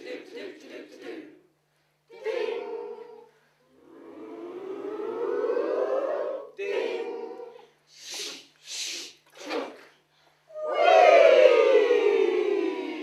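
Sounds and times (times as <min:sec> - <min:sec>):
group singing a bell-like note: 0:02.1 - 0:07.8
steady sung note: 0:03.7 - 0:07.4
rising ooh glide: 0:03.7 - 0:07.5
voices making shh hisses: 0:07.5 - 0:09.3.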